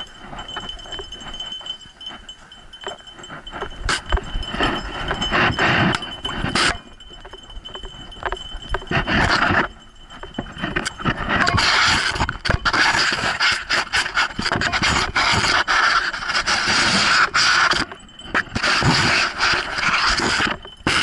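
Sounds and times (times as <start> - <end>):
dog harness tags jingling: 0.0 - 11.6
scratchy rubbing on camera: 10.8 - 17.8, 18.5 - 21.0.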